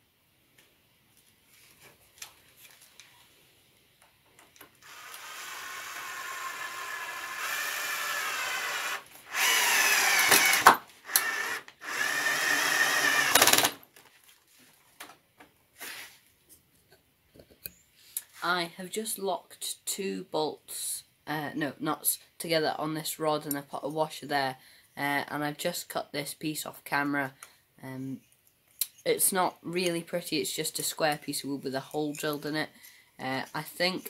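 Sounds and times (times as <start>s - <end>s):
cordless drill driving a screw: 4.8s - 13.8s.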